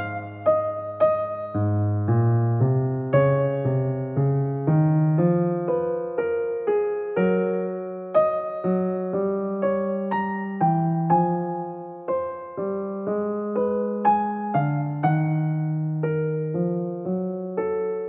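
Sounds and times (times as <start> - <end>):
gentle piano melody: 0.0 - 18.0.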